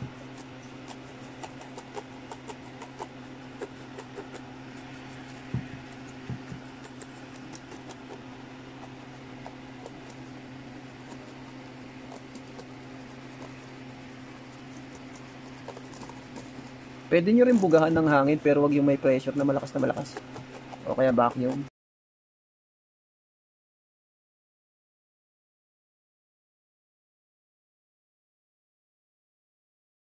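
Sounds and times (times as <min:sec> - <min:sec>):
brush scrubbing plastic casing: 0:00.0 - 0:21.7
steady low hum: 0:00.0 - 0:21.7.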